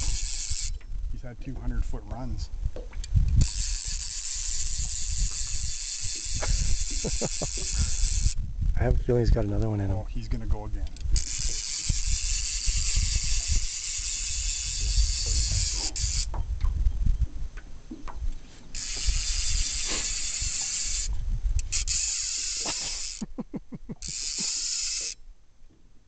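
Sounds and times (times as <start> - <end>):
fishing reel drag buzzing: 0.0 - 0.8, 3.4 - 8.4, 11.0 - 16.4, 18.7 - 23.2, 24.0 - 25.2
reel clicking: 0.0 - 0.9, 3.0 - 8.4, 10.9 - 16.4, 18.7 - 23.2, 24.0 - 25.2
wind rumbling on microphone: 0.0 - 22.1.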